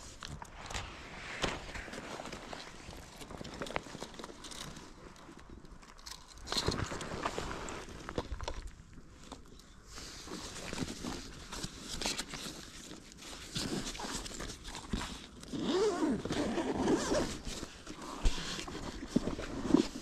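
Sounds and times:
zipper zipping: 15.5 - 17.4.

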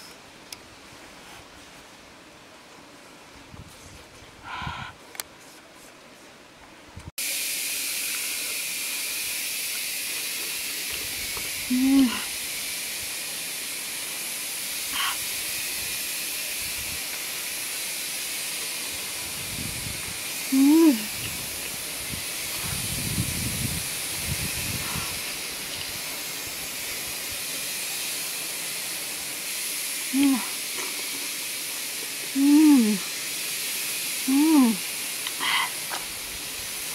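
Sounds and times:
high-pitched hiss: 7.2 - 36.9
woman humming mm: 11.7 - 12.4, 14.9 - 15.3, 20.5 - 21.4, 30.1 - 30.6, 32.3 - 33.1, 34.2 - 35.8.

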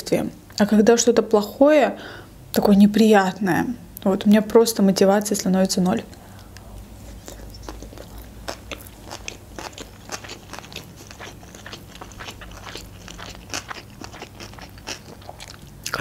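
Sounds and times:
chewing food with wet clicks: 7.2 - 16.0.

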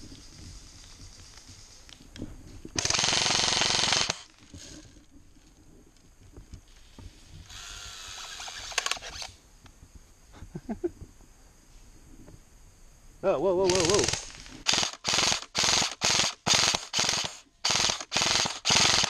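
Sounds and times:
airsoft rifle firing bursts: 2.8 - 4.3, 13.7 - 19.0.

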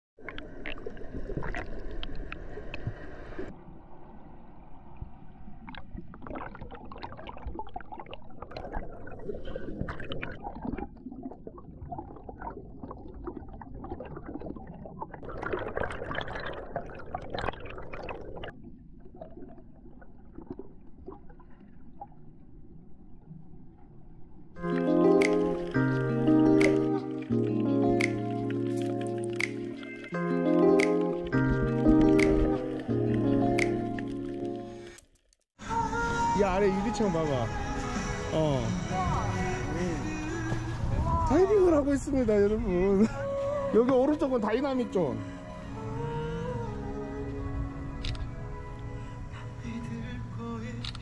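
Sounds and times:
pool water gurgling and sloshing: 0.2 - 27.4.

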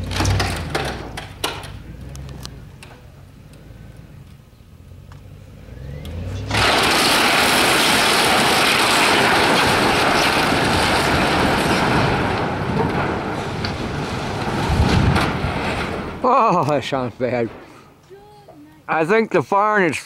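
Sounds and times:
barn collapsing with rushing crash: 0.0 - 3.1, 6.2 - 18.0
wood cracking: 0.0 - 4.4, 6.0 - 18.1
rumble: 0.0 - 18.2.

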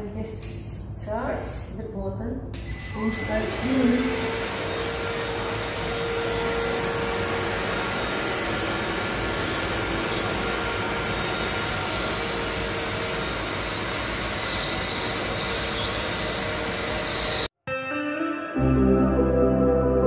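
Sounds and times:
stick vacuum cleaner whining: 2.6 - 17.5.

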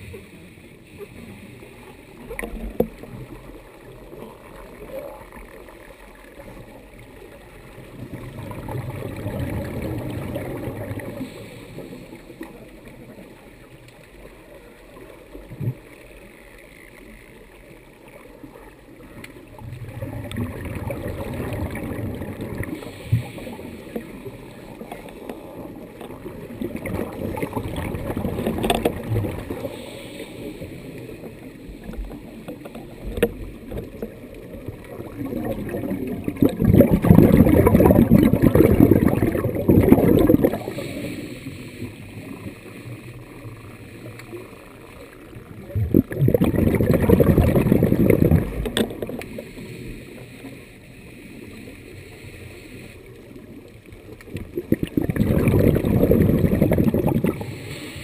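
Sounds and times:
low steady hiss: 0.0 - 58.0
diver's bubbles gurgling underwater: 2.2 - 5.4, 7.2 - 11.5, 19.6 - 29.8, 31.2 - 41.2, 45.4 - 49.5, 54.2 - 57.6.

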